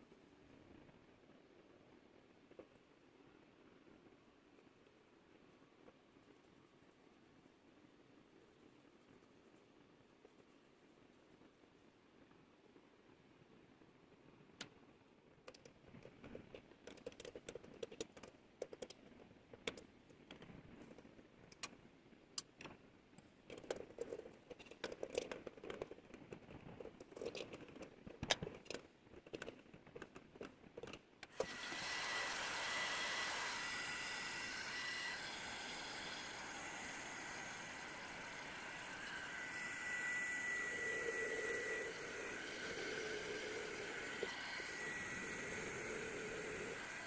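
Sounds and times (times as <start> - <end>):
cordless drill whining: 31.3 - 47.0.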